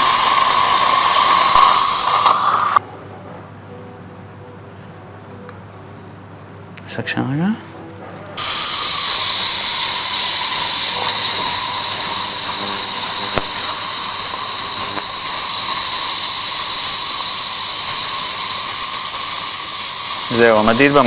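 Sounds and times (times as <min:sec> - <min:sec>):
suction aspirator hissing: 0:00.0 - 0:02.8, 0:08.4 - 0:21.0.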